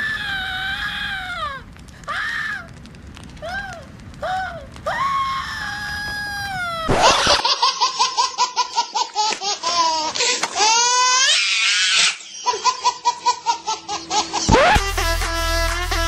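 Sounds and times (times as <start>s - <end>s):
baby laughing and squealing: 6.9s - 14.8s.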